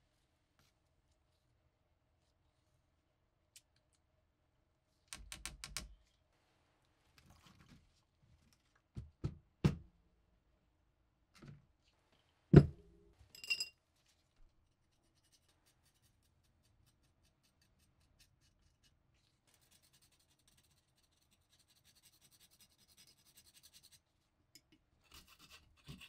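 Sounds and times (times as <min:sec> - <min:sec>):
light metallic clink: 0:13.3 - 0:13.7.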